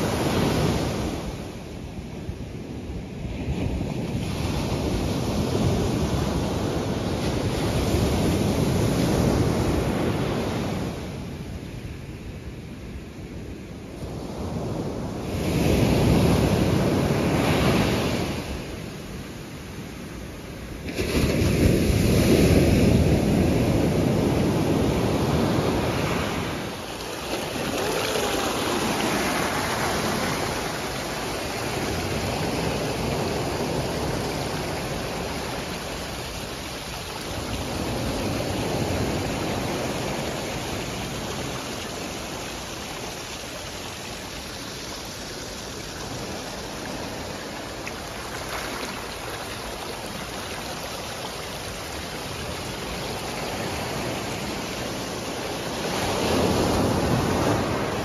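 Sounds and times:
sea waves breaking on shore: 14.0s - 58.0s.

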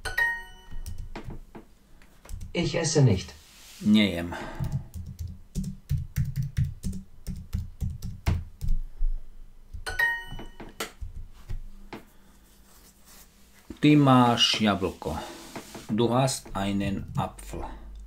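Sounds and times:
computer keyboard typing: 0.7s - 1.2s, 4.6s - 8.8s.

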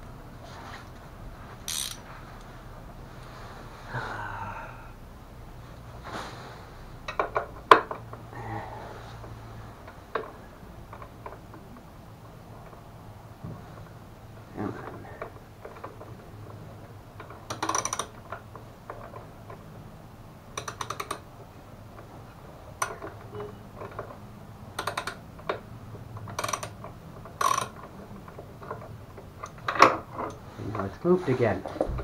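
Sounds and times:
ratchet wrench clicking: 1.7s - 2.0s, 17.5s - 18.1s, 20.6s - 21.2s, 26.3s - 26.8s, 27.4s - 27.8s.

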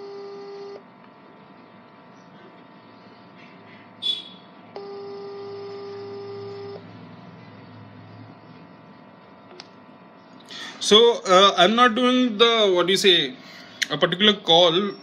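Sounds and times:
phone ringback tone: 0.0s - 0.8s, 4.8s - 7.0s.

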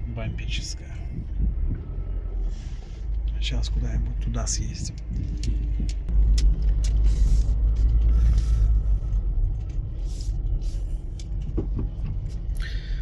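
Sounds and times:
car engine and road rumble: 0.0s - 13.0s.

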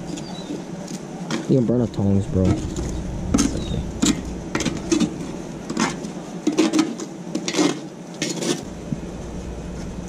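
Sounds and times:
metal tongs scraping charcoal: 2.4s - 8.7s.

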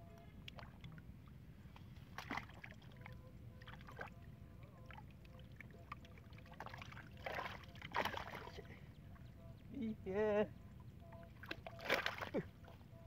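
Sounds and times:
low background rumble: 0.0s - 11.7s
small splashes: 0.4s - 8.7s, 11.2s - 12.8s
hands sloshing muddy water: 2.0s - 3.1s, 6.0s - 8.7s, 11.4s - 12.8s.

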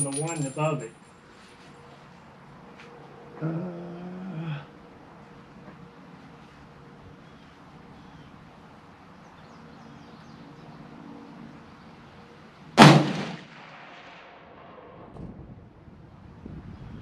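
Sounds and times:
rifle shot with echo: 12.8s - 15.2s.

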